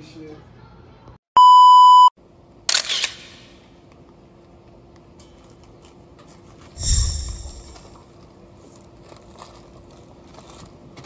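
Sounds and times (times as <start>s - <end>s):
short hissing burst: 6.8s - 7.9s.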